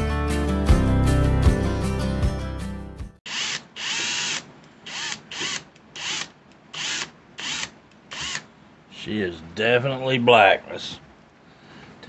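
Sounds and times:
electric drill whining: 3.3s - 8.5s.

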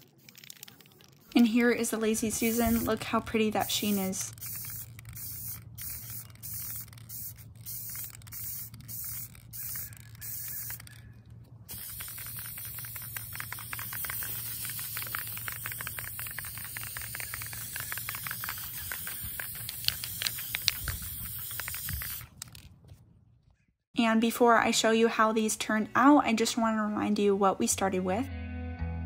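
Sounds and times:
spray can hissing: 0.0s - 11.0s, 11.7s - 22.7s
spray crackling spatter: 0.0s - 11.0s, 11.7s - 22.7s.

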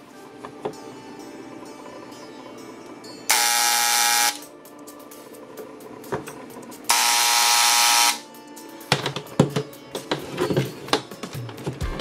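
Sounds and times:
electric engraver buzzing: 3.3s - 4.5s, 6.9s - 8.3s.

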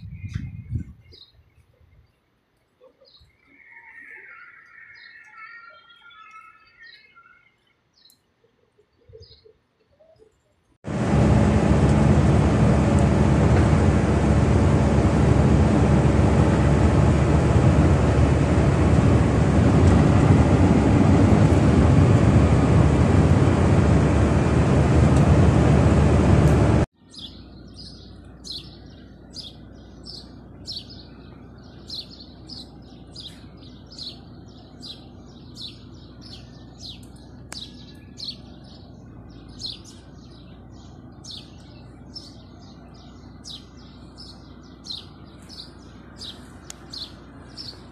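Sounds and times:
vehicle road and wind noise: 0.0s - 2.1s, 10.8s - 47.9s
bird high chirp: 2.8s - 8.3s, 27.0s - 47.9s.

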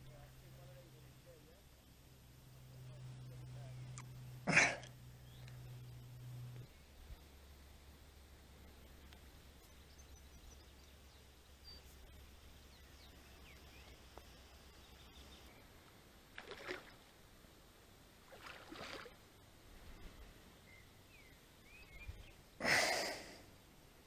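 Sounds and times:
faint bird chirps: 20.1s - 22.5s.

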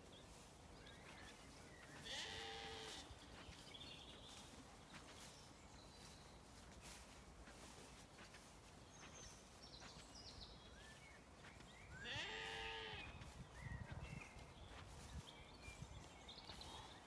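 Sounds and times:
sheep bleating: 2.0s - 3.1s, 12.0s - 13.1s.

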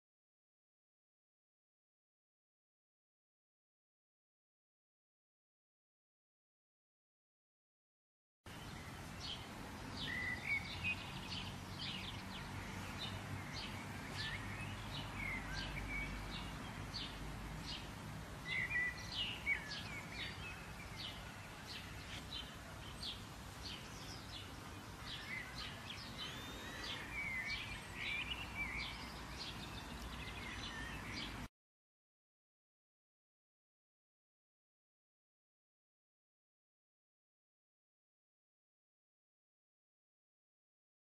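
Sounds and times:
birds chirping and singing: 8.5s - 31.5s.

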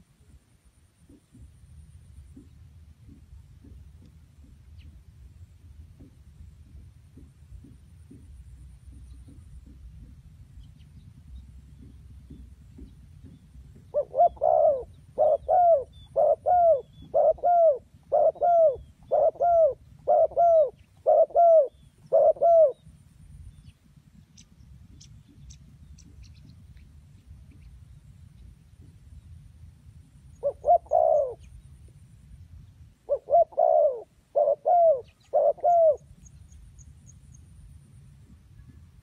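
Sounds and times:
dove cooing: 11.7s - 22.9s, 30.3s - 31.6s, 33.0s - 36.2s.

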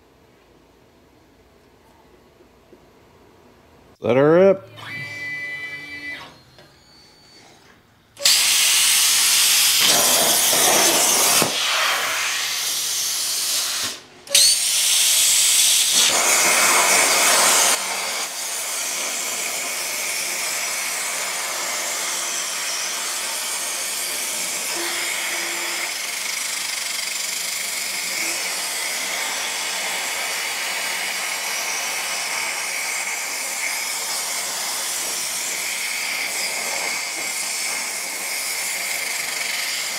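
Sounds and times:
plasma cutter hissing: 8.2s - 19.2s, 22.6s - 39.9s.

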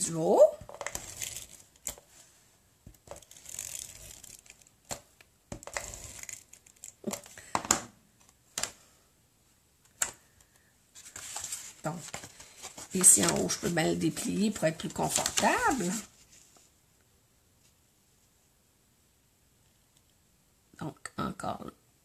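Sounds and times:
paper crinkling and rustling: 0.7s - 2.2s, 3.0s - 5.0s, 11.0s - 16.7s.

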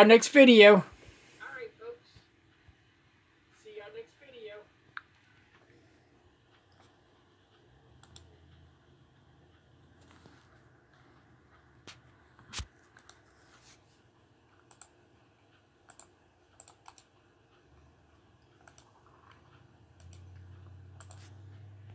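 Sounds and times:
faint clicks and taps: 4.8s - 21.9s.

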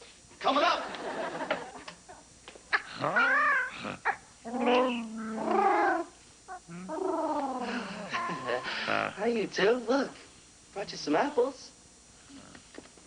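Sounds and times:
wavering warbling calls: 2.7s - 8.8s.

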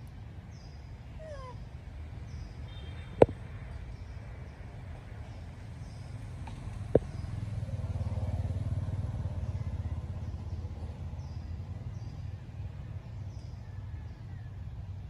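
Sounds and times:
engine low pulsing rumble: 0.0s - 15.0s.

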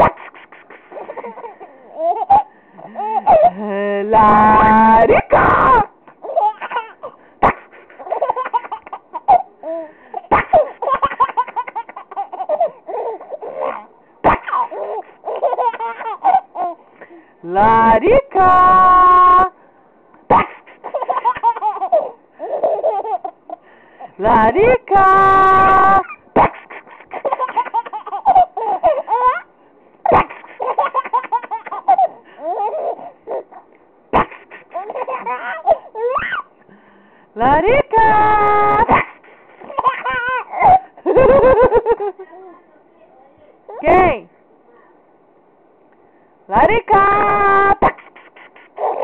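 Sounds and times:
baby laughing and giggling: 0.0s - 3.6s, 5.2s - 16.8s, 20.3s - 23.6s, 25.5s - 36.5s, 38.1s - 42.5s, 47.2s - 49.0s.

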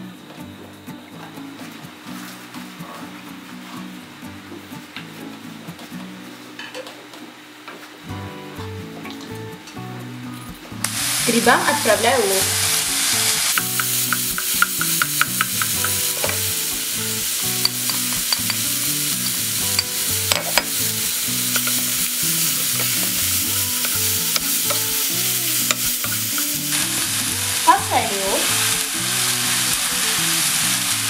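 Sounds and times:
mushrooms sizzling in a pan: 10.8s - 31.0s.

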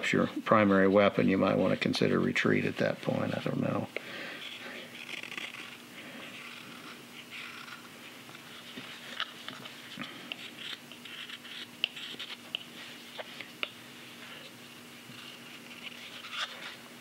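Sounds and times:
faint steady hum: 0.0s - 17.0s
knife carving wood: 4.4s - 9.7s, 10.3s - 13.7s, 15.1s - 16.8s.

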